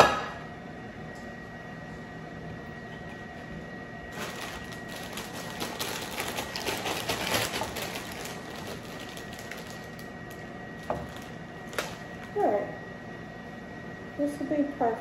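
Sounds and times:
plastic bag crinkling: 0:04.1 - 0:12.5.

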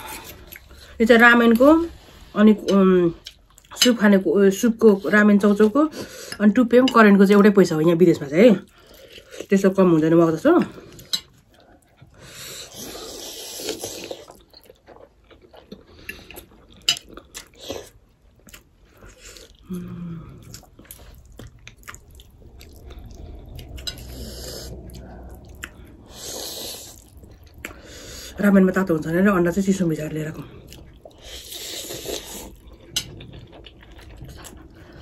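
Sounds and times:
people slurping noodles: 0:31.2 - 0:32.6.

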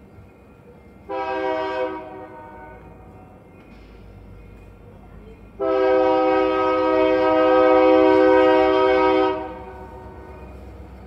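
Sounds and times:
low rumble of a train: 0:00.0 - 0:11.0
locomotive air horn blast: 0:01.1 - 0:02.8, 0:05.6 - 0:10.1.

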